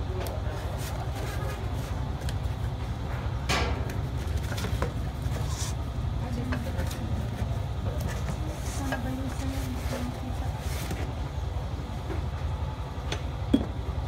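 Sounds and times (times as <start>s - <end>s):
cardboard rustling and scraping: 0.5s - 2.7s.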